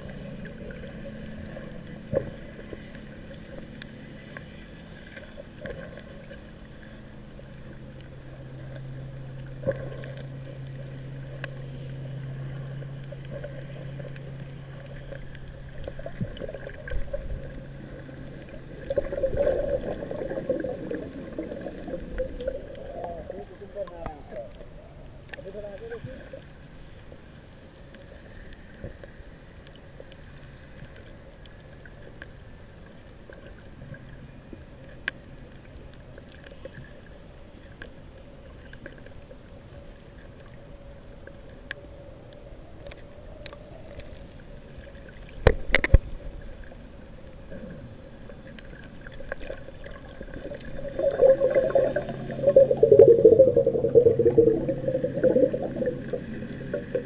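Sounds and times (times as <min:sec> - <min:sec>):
muffled underwater wash: 0:00.0 - 0:57.0
air bubbles bubbling: 0:15.8 - 0:23.3, 0:49.2 - 0:57.0.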